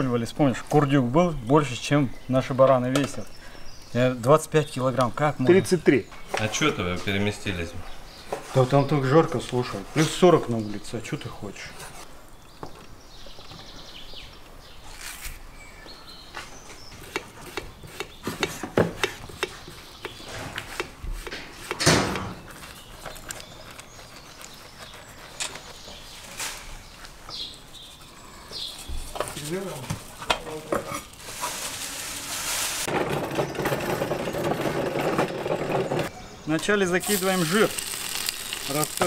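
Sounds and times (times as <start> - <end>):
loud clatter: 32.7 - 36.1
fat sizzling in a pot: 37.0 - 39.0.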